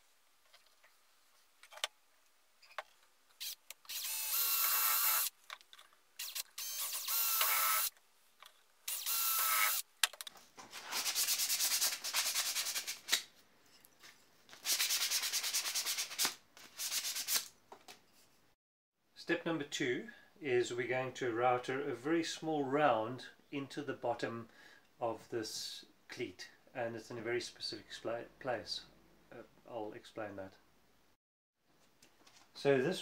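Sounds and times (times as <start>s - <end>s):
drilling wood: 3.4s - 5.3s, 6.2s - 7.9s, 8.9s - 9.8s.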